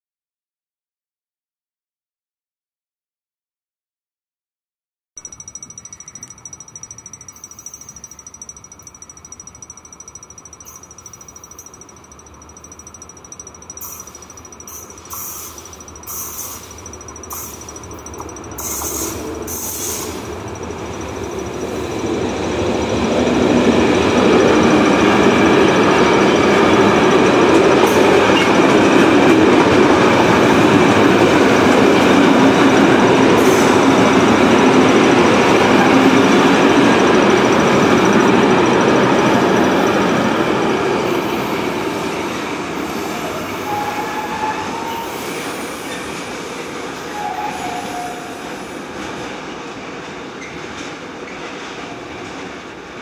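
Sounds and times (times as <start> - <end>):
freight train rolling past: 5.3 - 53.0.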